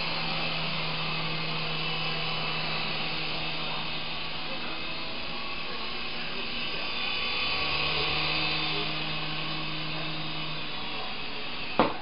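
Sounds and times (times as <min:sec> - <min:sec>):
toy helicopter rotors whirring: 0:00.0 - 0:12.0.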